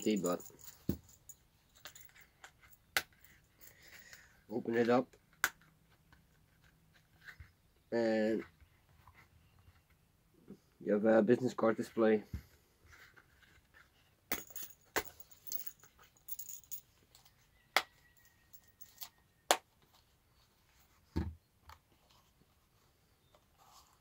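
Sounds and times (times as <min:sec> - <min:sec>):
leather rustling: 0:00.0 - 0:04.0.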